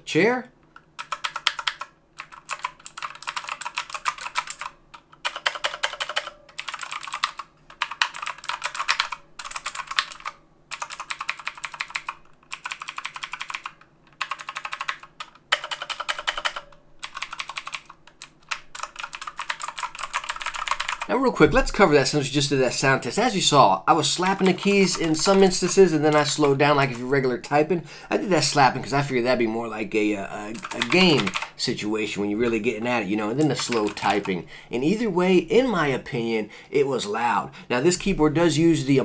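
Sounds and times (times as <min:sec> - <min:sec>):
mechanical keyboard typing clicks: 0:00.8 - 0:21.1, 0:24.2 - 0:27.1, 0:30.5 - 0:31.5, 0:33.4 - 0:34.4.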